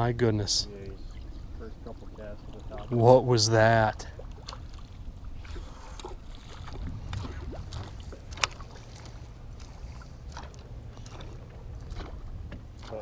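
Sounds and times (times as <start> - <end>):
waves lapping against boat hull: 0.0 - 13.0
wind rumble on microphone: 4.2 - 13.0.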